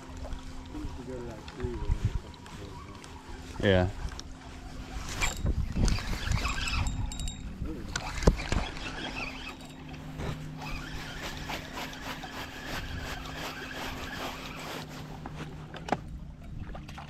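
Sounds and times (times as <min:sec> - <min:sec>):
steady low hum: 0:00.0 - 0:17.0
fishing reel cranking: 0:05.0 - 0:14.9.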